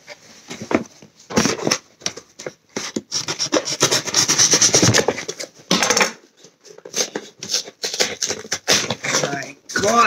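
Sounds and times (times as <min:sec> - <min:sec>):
rapid scratching on cardboard: 0:03.1 - 0:05.0.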